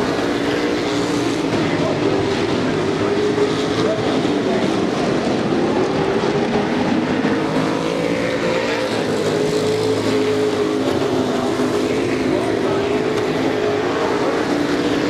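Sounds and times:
race truck engines racing past: 0.0s - 15.0s.

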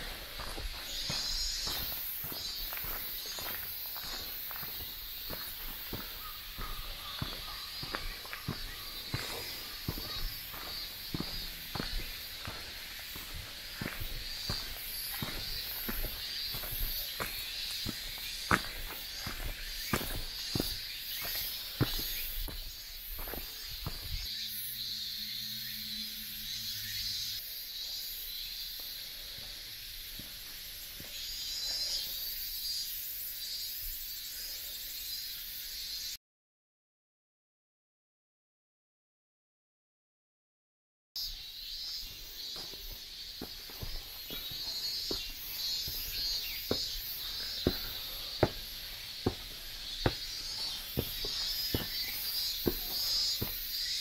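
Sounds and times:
footsteps walking: 0.0s - 24.3s, 42.0s - 54.0s
insects chirping chorus: 0.0s - 36.2s, 41.2s - 54.0s.

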